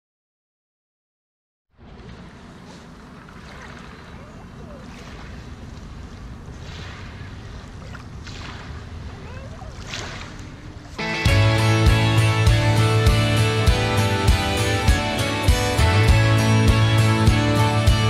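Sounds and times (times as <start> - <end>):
small waves lapping on sand: 1.8 - 11.1.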